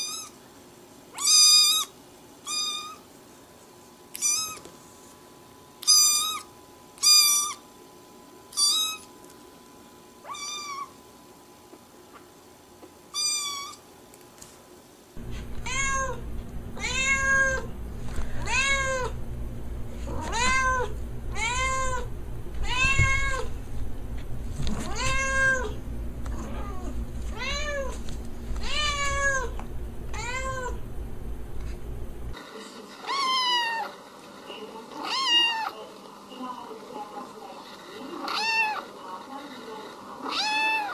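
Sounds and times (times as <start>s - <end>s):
cat meowing: 2.5s - 3.0s, 4.2s - 4.6s, 10.2s - 10.9s, 13.1s - 13.8s, 15.2s - 17.7s, 18.4s - 19.2s, 20.1s - 23.5s, 24.8s - 25.8s, 26.4s - 28.0s, 28.6s - 30.8s, 35.0s - 35.7s, 38.2s - 38.8s, 40.2s - 40.9s
kitten meowing: 2.5s - 3.0s, 4.2s - 4.6s, 10.2s - 10.9s, 15.3s - 16.2s, 16.8s - 17.7s, 18.4s - 19.2s, 20.1s - 23.5s, 24.8s - 25.8s, 28.6s - 30.8s
steady low hum: 15.2s - 32.4s.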